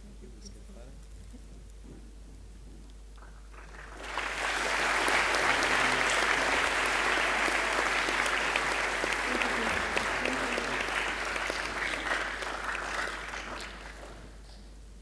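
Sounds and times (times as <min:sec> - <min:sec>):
audience applauding: 0:03.5 - 0:14.4.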